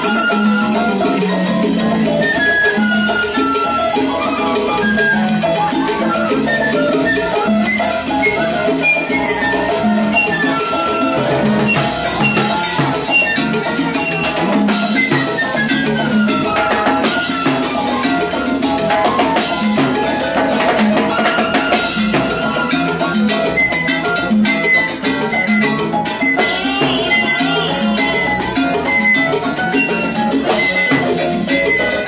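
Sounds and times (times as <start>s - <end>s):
bass: 0.0s - 32.0s
flute melody: 0.0s - 32.0s.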